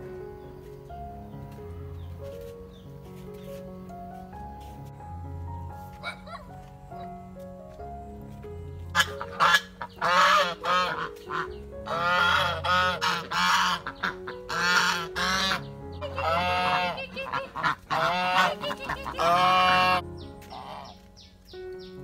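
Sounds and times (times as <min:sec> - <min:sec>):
ducks quacking loudly: 0:08.9 - 0:21.0.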